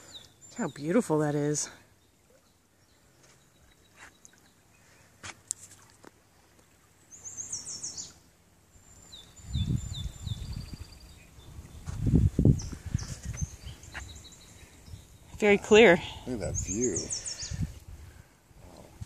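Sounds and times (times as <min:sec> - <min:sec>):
songbird singing: 0:00.0 - 0:18.9
wind rumbling on microphone: 0:08.9 - 0:19.0.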